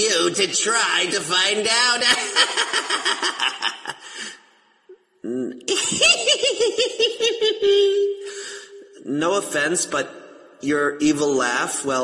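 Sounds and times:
child's evil laugh: 5.7s - 8.2s.

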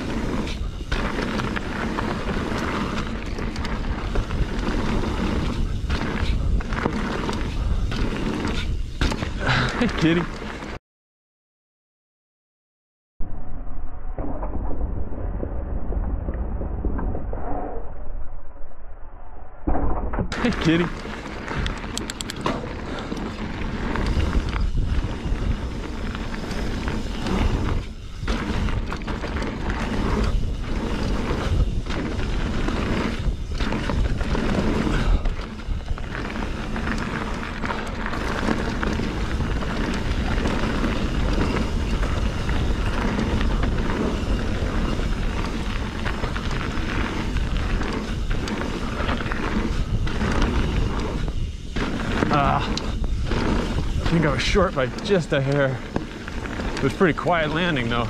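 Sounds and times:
bike tyres rolling on dirt: 0.0s - 10.8s, 20.1s - 58.0s
wind rushing over microphone: 13.2s - 58.0s.

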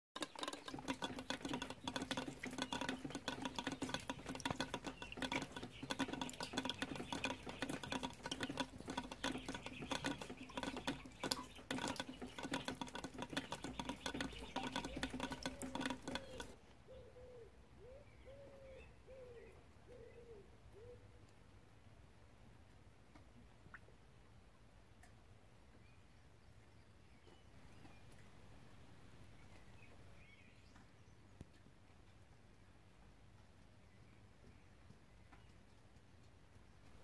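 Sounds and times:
rain pattering: 0.2s - 16.6s
hen clucking softly: 0.3s - 17.4s.

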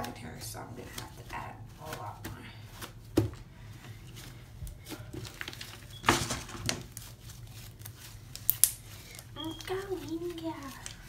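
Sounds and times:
paper rustling: 3.7s - 11.0s.

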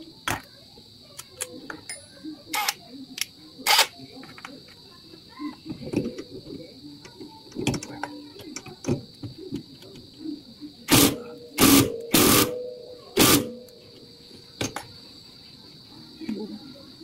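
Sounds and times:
impact wrench hammering: 10.9s - 13.7s.

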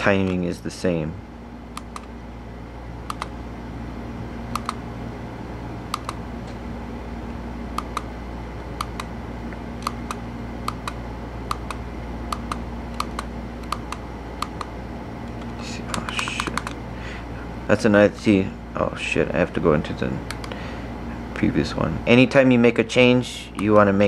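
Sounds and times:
steady low hum: 0.0s - 24.0s
push buttons clicking: 1.7s - 2.1s, 3.0s - 3.3s, 4.5s - 4.8s, 5.9s - 6.6s, 7.7s - 8.1s, 8.7s - 9.1s, 9.8s - 16.8s, 20.2s - 20.6s.

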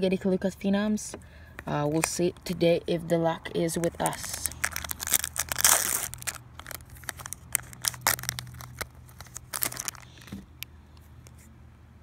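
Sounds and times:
wrapper crinkling and crackling: 3.7s - 10.4s
foil wrapper ripping: 3.9s - 10.3s.

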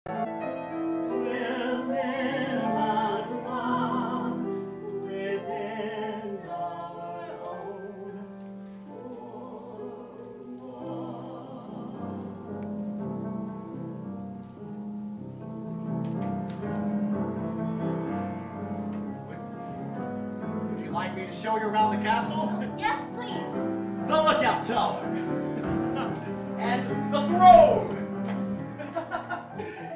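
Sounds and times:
piano accompaniment: 0.1s - 29.9s
man and woman singing duet: 1.1s - 12.5s.

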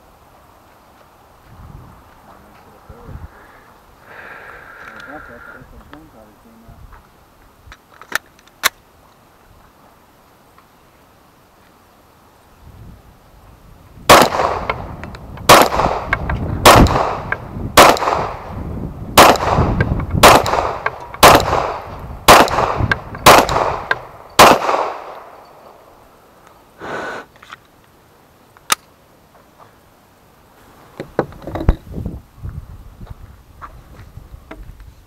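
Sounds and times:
pistol shots with echo: 14.1s - 14.9s, 15.5s - 18.5s, 19.2s - 25.4s.

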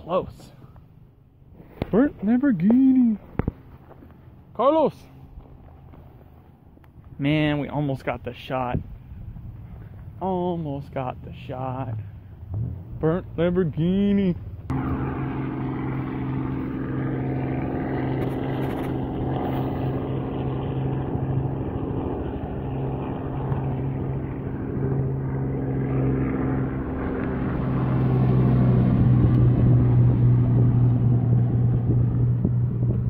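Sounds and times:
vehicle engine droning: 8.9s - 33.0s.

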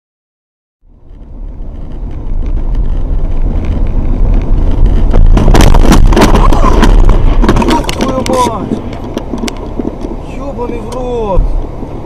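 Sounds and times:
car road noise and engine rumble: 0.8s - 12.0s
vehicle crash bangs and scraping: 1.8s - 10.2s.

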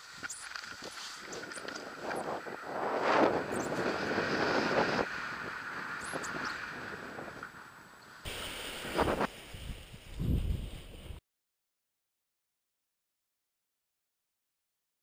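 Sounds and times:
wind rushing over microphone: 0.6s - 11.2s.

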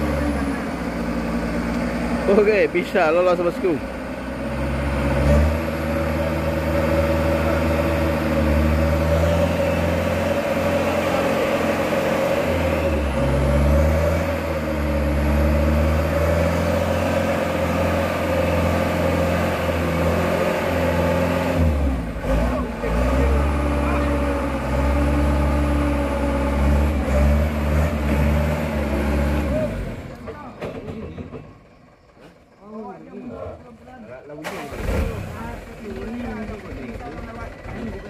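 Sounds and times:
diesel truck engine under load: 0.0s - 38.0s.

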